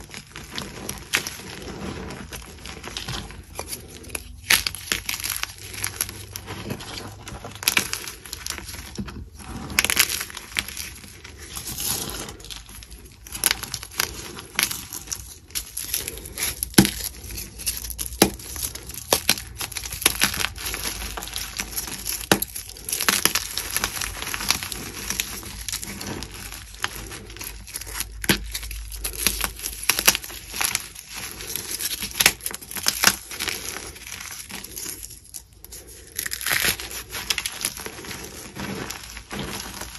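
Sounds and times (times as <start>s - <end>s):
hands crushing chalk blocks: 0.0s - 39.9s.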